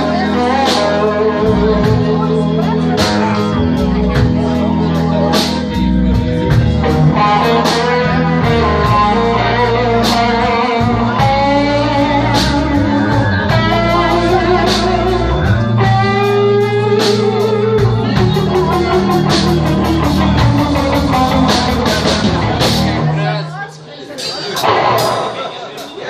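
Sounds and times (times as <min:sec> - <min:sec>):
electric guitar bending notes: 0:00.0 - 0:23.4, 0:24.6 - 0:25.7
bass: 0:00.0 - 0:23.5
drums with cymbals: 0:03.0 - 0:23.1.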